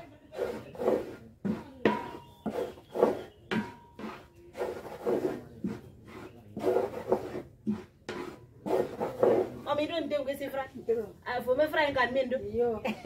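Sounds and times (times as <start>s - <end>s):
wooden paddle scraping pan: 0.0s - 10.2s.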